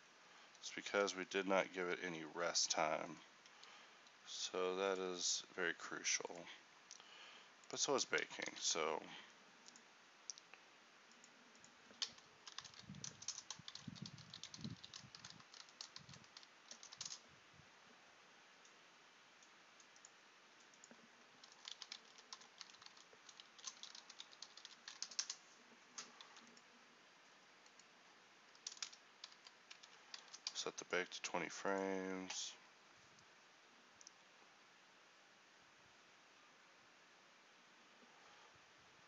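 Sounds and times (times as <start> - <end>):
keyboard typing: 11.1 - 17.2, 19.8 - 25.4, 26.0 - 26.6, 28.5 - 30.6.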